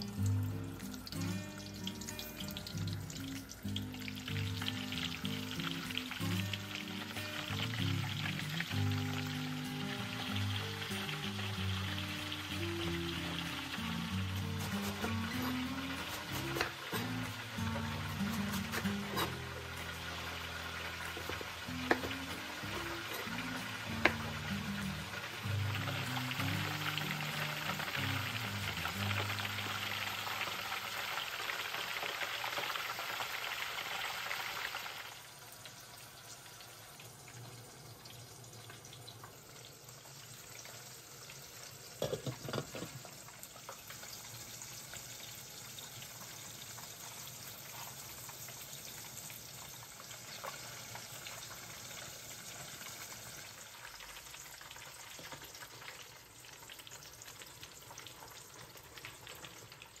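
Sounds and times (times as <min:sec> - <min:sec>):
food sizzling in a pan: 0:00.0 - 1:00.0.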